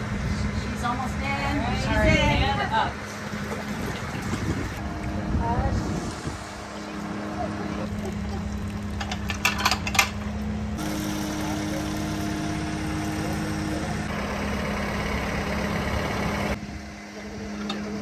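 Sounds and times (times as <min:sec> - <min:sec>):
engine idling: 0:06.6 - 0:18.0.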